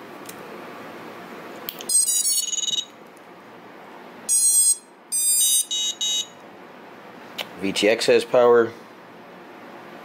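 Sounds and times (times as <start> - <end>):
electronic beeps from drone motors: 4.3 - 6.3.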